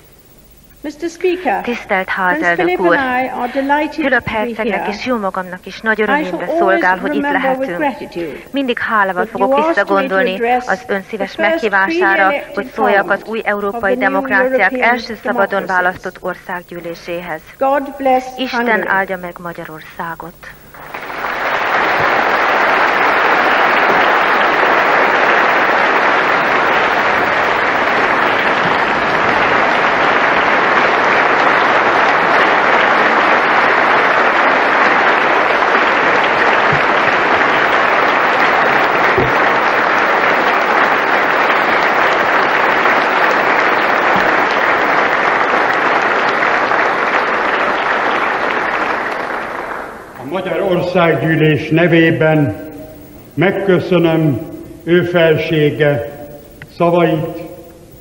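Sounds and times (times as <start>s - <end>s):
large crowd applauding: 1.6s - 4.0s, 5.9s - 10.4s, 11.4s - 15.7s, 20.6s - 53.1s.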